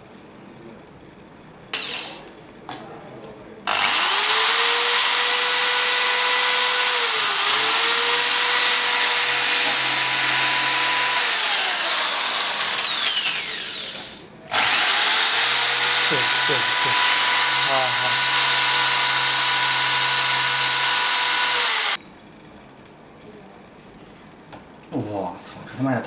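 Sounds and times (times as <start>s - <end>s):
electric drill whining: 1.7s - 2.2s, 3.7s - 22.0s
drill bit grinding glass and metal: 3.7s - 22.0s.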